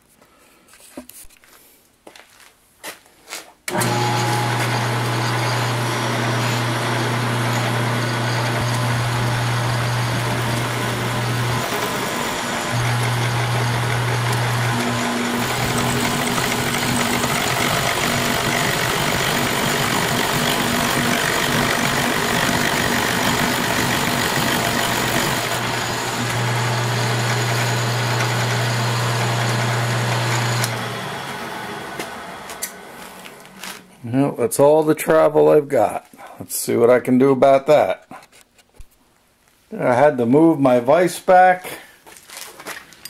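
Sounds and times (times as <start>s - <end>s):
milling machine motor hum: 3.7s - 33.9s.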